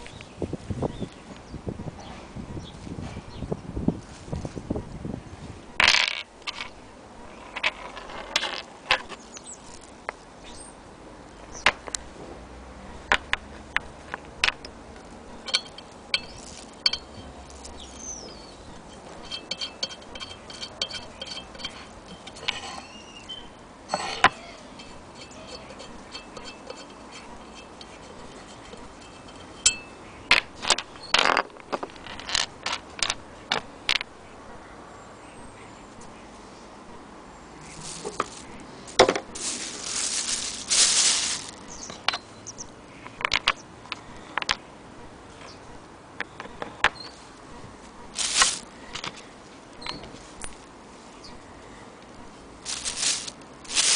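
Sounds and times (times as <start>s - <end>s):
metal parts clicking and clinking: 15.4s - 23.0s, 23.9s - 33.6s, 48.2s - 49.1s, 52.7s - 53.9s
faint ringing: 15.4s - 30.4s.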